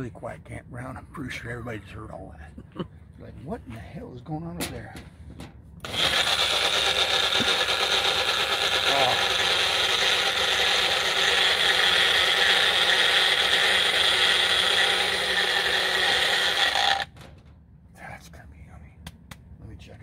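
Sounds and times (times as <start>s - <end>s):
blender whirring: 5.8s - 17.1s.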